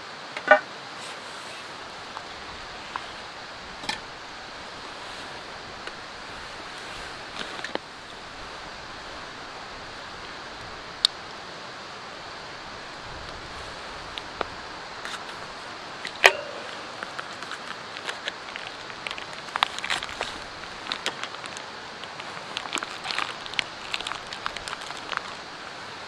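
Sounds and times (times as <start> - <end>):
steady background hiss: 0.0 - 26.0
plastic wrapping crinkling: 16.0 - 25.5.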